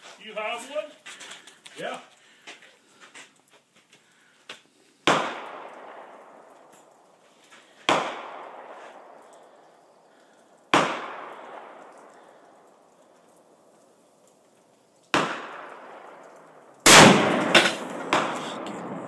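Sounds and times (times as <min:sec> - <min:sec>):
loud gunshots with echo: 0:05.1 - 0:06.5, 0:07.8 - 0:09.2, 0:10.7 - 0:12.3, 0:15.2 - 0:16.2, 0:16.9 - 0:19.0.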